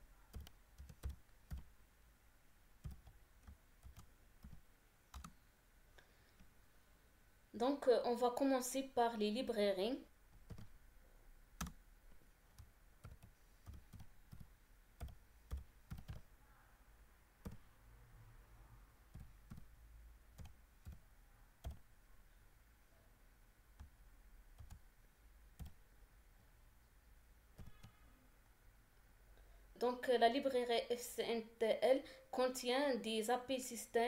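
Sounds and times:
laptop keyboard keystrokes: 0.3 - 1.7, 2.8 - 5.4, 10.4 - 10.7, 12.5 - 16.3, 17.4 - 17.7, 19.1 - 19.7, 20.4 - 21.0, 21.6 - 21.8, 24.6 - 24.8, 25.6 - 25.8.

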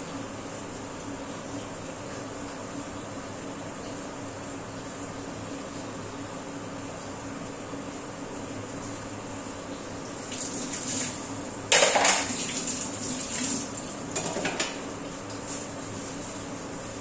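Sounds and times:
pots and utensils clattering: 11.7 - 12.6, 14.1 - 14.8.

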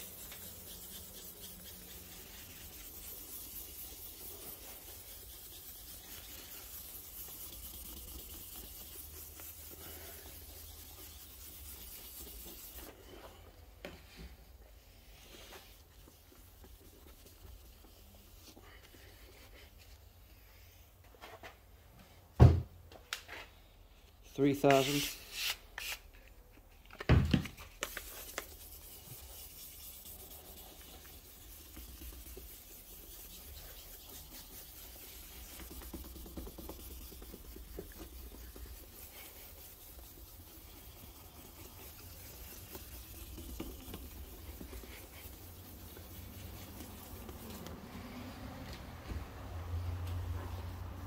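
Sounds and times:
wet sanding rubbing hiss: 0.0 - 12.9, 27.9 - 48.3.

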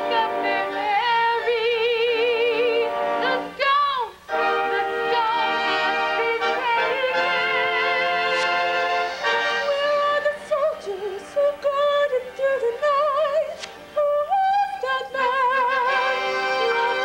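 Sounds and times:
soprano voice singing with vibrato: 0.0 - 17.0.

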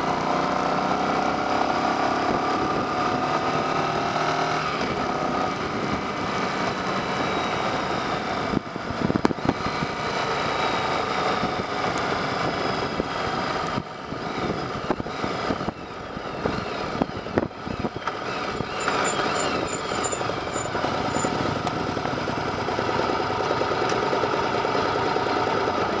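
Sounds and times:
motorcycle engine running: 0.0 - 26.0
wind rush on microphone: 4.8 - 10.0, 11.3 - 22.0.

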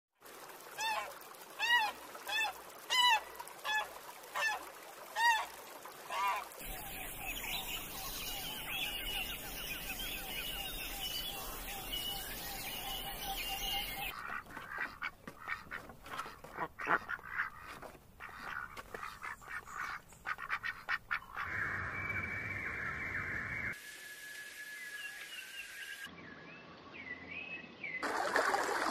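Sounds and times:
thin high calls: 6.1 - 14.2
geese honking: 6.1 - 15.7
songbirds chattering: 6.6 - 15.6.

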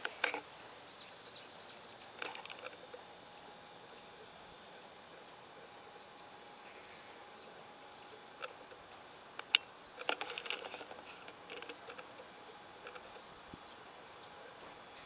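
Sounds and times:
insects chirring: 0.0 - 15.0
sharp clicks and ticks: 9.4 - 13.2.

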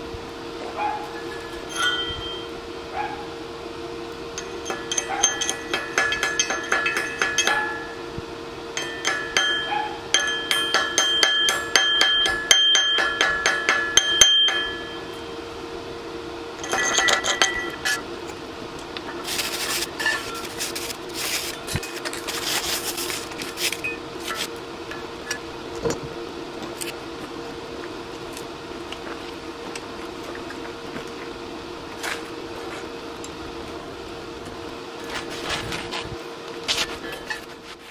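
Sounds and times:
steady hum: 0.0 - 37.9
chipping hammer tapping steel: 4.4 - 8.0, 8.8 - 15.2, 16.6 - 18.0
wire brush scratching welds: 19.1 - 24.5.

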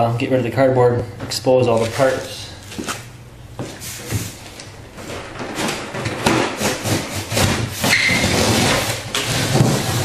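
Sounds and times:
blade sawing through cardboard: 6.5 - 10.0.

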